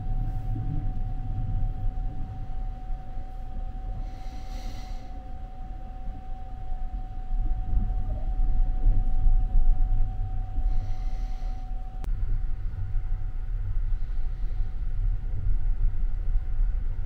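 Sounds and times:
train rumbling on track: 0:00.0 - 0:05.0.

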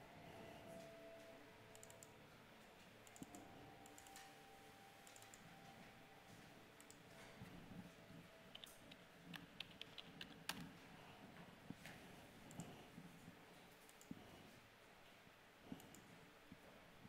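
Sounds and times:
faint steady hum: 0:00.0 - 0:17.0
computer mouse clicks: 0:01.7 - 0:02.1, 0:03.0 - 0:04.4, 0:05.0 - 0:05.5, 0:06.8 - 0:07.0, 0:08.5 - 0:10.7, 0:12.5 - 0:12.8, 0:13.8 - 0:14.2, 0:15.7 - 0:16.1.

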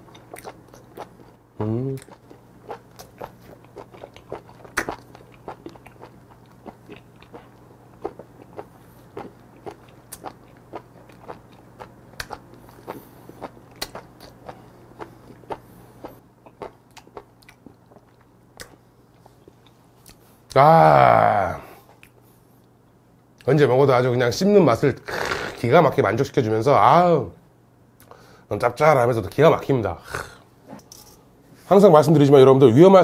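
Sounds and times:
wet chewing clicks and smacks: 0:00.0 - 0:01.4, 0:02.0 - 0:18.8.

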